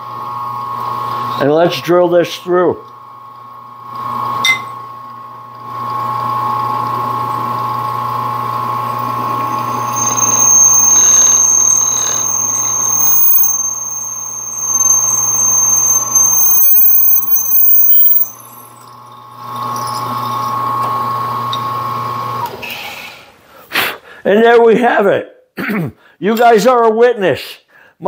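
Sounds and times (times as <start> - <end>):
drill bit whining through metal: 5.5 - 22.5
drill press motor humming: 5.5 - 22.5.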